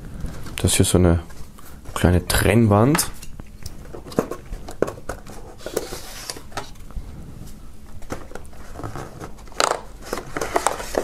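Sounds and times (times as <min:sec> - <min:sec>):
paper rustle: 0:08.0 - 0:11.0.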